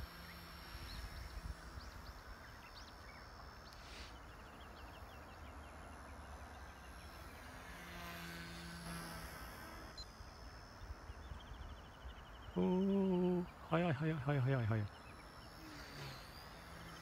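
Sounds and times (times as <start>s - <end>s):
rc helicopter humming: 0.0s - 17.0s.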